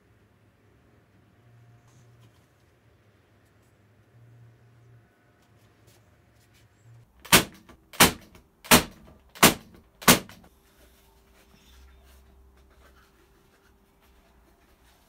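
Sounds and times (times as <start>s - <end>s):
nail gun firing: 7.2s - 10.5s.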